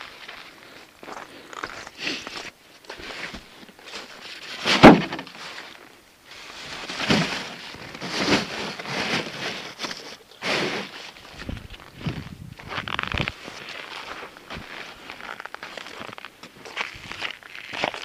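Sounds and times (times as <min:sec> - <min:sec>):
footsteps crunching in snow: 0:10.6 - 0:18.0.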